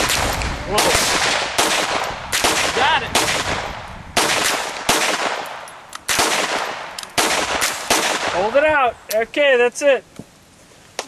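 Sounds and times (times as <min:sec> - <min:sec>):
pistol shots: 0:00.0 - 0:08.5.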